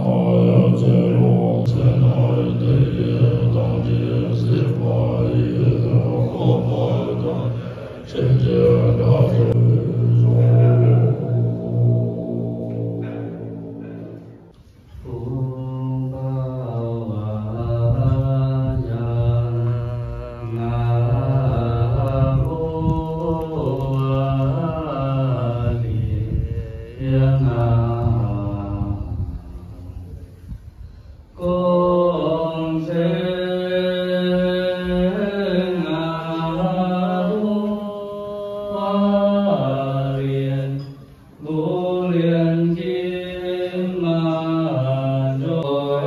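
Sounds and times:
person chanting into a microphone: 0.0s - 46.0s.

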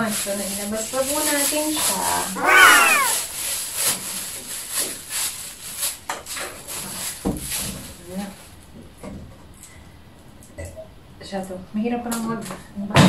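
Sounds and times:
high-pitched vocal exclamation: 1.8s - 3.2s.

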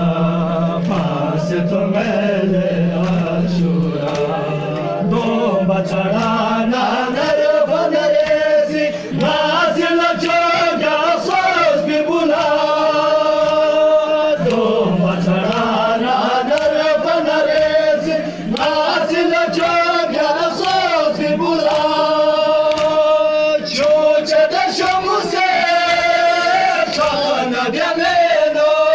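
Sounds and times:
men chanting a lament: 0.0s - 28.9s
chest-beating slaps: 22.6s - 23.1s.

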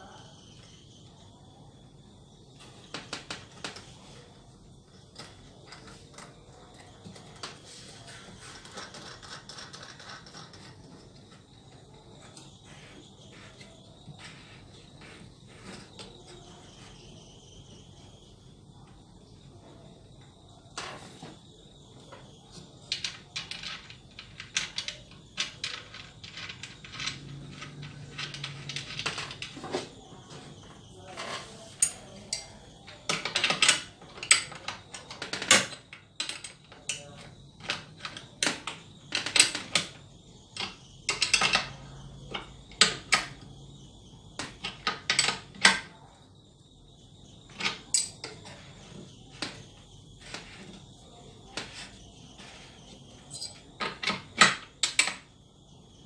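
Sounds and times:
wooden parts knocking: 22.0s - 46.1s, 47.4s - 55.4s.

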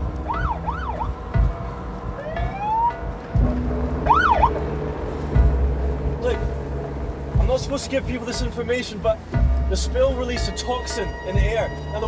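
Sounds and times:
low steady hum: 0.0s - 10.6s
police siren whoops: 0.2s - 1.2s, 2.2s - 3.2s, 4.0s - 4.6s.

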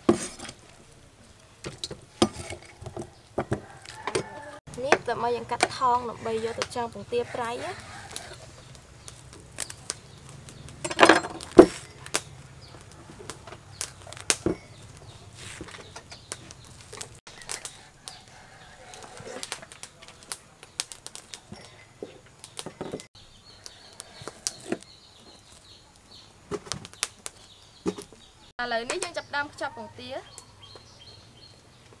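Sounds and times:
plastic cling film crinkling: 18.9s - 25.8s.

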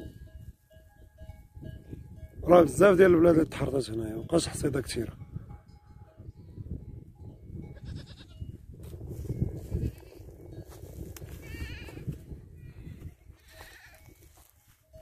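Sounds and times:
wind rumble on microphone: 0.0s - 15.0s
goats bleating: 13.4s - 14.0s.

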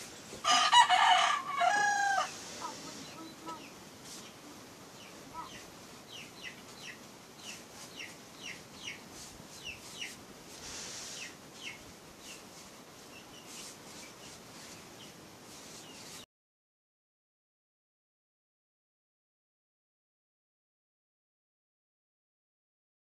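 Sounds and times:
birds chirping: 1.5s - 10.2s, 10.9s - 16.2s
brief soft hiss: 10.6s - 11.4s.

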